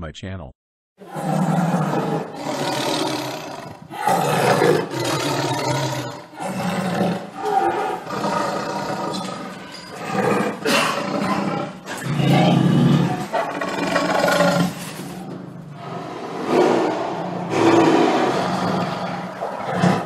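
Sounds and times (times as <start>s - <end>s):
tiger roaring: 1.0s - 20.0s.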